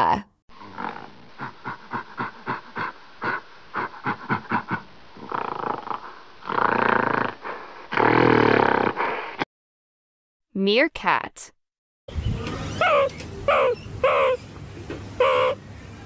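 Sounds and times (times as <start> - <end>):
gorilla grunting: 0.5 - 9.2
gorilla growling: 0.5 - 9.4, 12.7 - 14.4.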